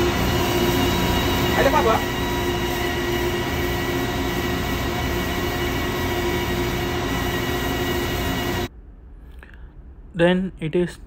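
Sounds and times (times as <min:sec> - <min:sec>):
belt sander grinding whine: 0:00.0 - 0:08.7.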